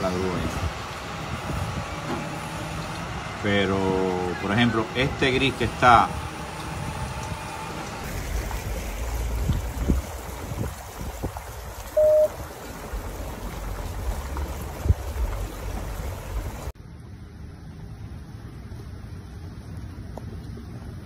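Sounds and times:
floodwater running and trickling: 0.0 - 21.0
loud single-pitched beep: 12.0 - 12.3.

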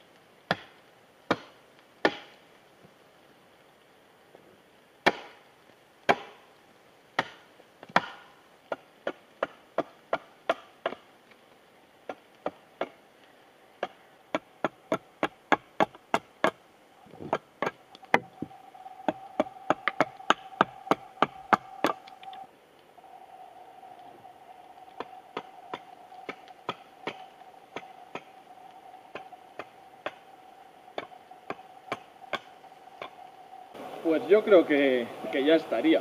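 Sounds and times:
hatchet chopping wood: 0.5 - 2.3, 5.0 - 5.4, 6.1 - 6.4, 7.2 - 11.0.

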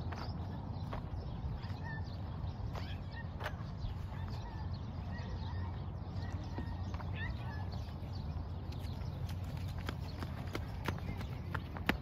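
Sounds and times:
footsteps on gravel: 0.0 - 4.8, 6.2 - 12.0.

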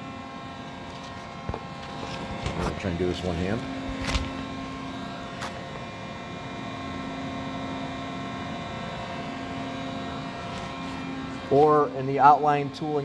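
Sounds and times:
machine-shop equipment humming: 0.0 - 13.0.

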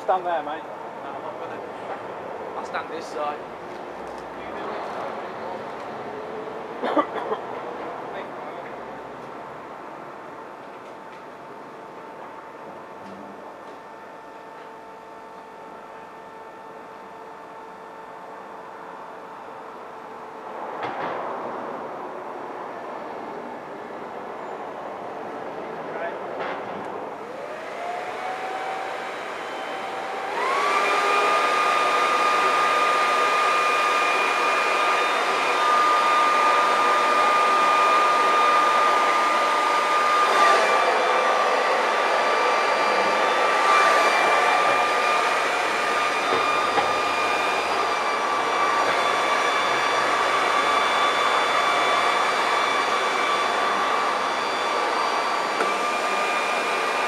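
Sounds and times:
electric blower whining: 27.2 - 57.0.

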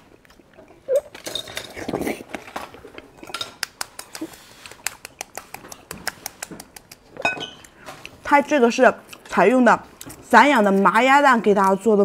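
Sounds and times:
chewing clicks and crackles: 0.1 - 8.2
fingers handling egg shell: 3.5 - 7.8.

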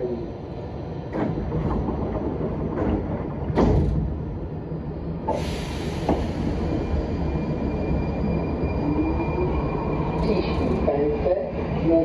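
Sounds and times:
standing train rumble: 0.0 - 12.0
train doors closing: 1.0 - 4.5, 5.2 - 10.9.

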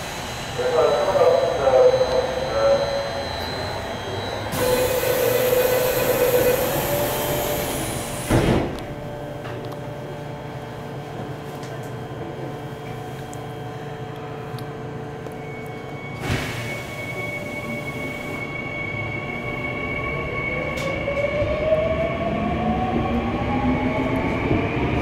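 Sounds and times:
stationary subway car humming: 0.0 - 25.0
door warning tone: 0.6 - 8.0
subway doors shutting thud: 3.5 - 9.7, 16.1 - 18.6, 20.6 - 21.8.

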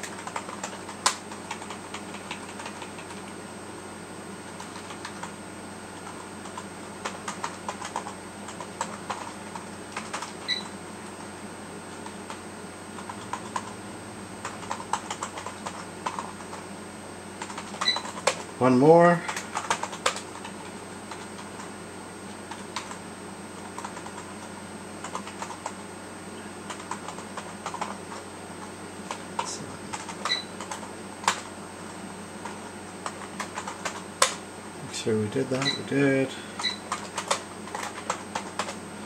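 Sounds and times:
typing on computer keyboard: 0.0 - 3.2, 4.6 - 5.4, 6.0 - 10.7, 13.0 - 13.8, 14.4 - 16.6, 17.4 - 18.5, 19.3 - 21.7, 22.5 - 23.0, 23.6 - 24.4, 25.0 - 25.8, 26.7 - 28.2, 29.1 - 31.5, 32.4 - 34.4, 36.6 - 38.8.

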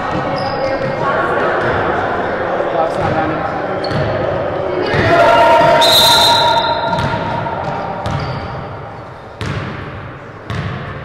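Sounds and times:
referee whistle blowing: 5.6 - 7.2
basketball bouncing on hardwood: 6.9 - 8.6, 9.4 - 9.8, 10.5 - 10.8.

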